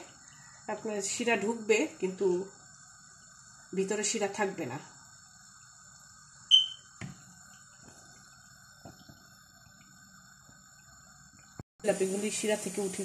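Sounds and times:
faint steady hum: 0.0s - 13.0s
loud high chirp: 6.5s - 6.9s.

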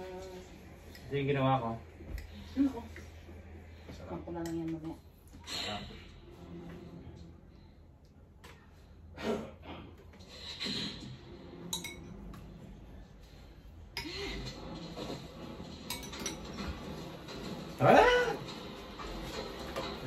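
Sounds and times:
cutlery and dishes clinking: 11.6s - 12.4s, 15.7s - 17.4s.

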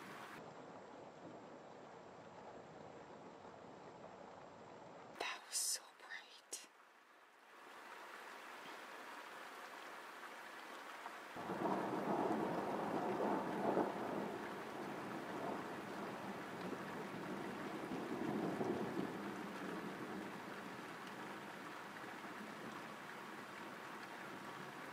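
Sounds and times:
steady rain: 0.0s - 24.9s
thunder rumbling: 11.4s - 20.9s.

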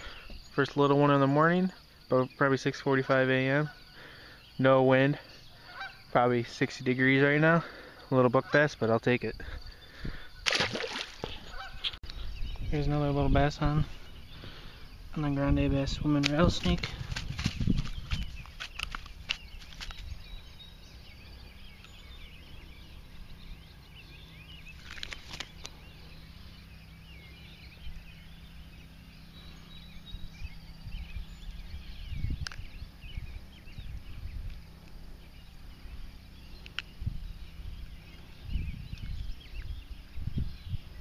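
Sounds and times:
birds chirping: 0.0s - 41.0s
steady low hum: 0.0s - 41.0s
clicks and knocks handling fish: 16.2s - 20.1s.

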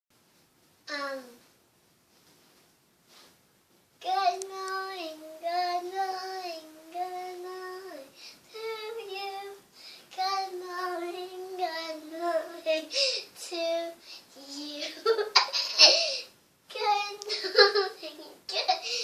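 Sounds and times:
girl singing long notes: 4.0s - 14.8s.

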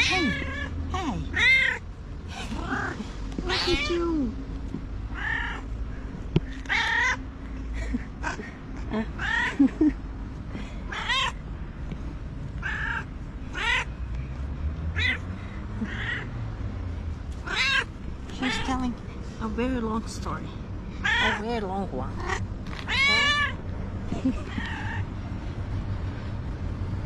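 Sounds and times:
cat meowing: 0.0s - 1.8s, 2.6s - 4.1s, 5.1s - 5.7s, 6.6s - 7.2s, 10.9s - 11.4s, 12.6s - 13.9s, 15.0s - 15.2s, 15.8s - 16.3s, 17.4s - 18.7s, 21.0s - 21.4s, 22.2s - 23.6s, 24.4s - 25.1s.

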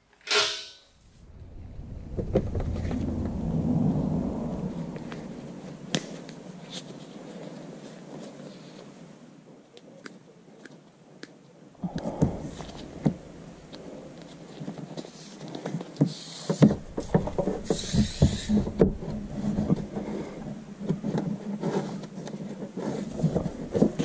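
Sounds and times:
low steady hum: 0.7s - 9.6s, 11.6s - 15.6s
knocks and rustles of handling: 11.8s - 24.0s.

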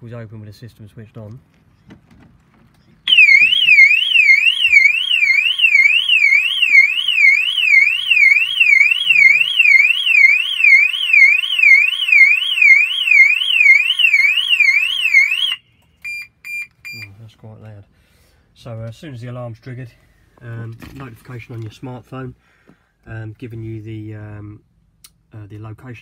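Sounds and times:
car alarm siren warbling: 3.1s - 16.2s.

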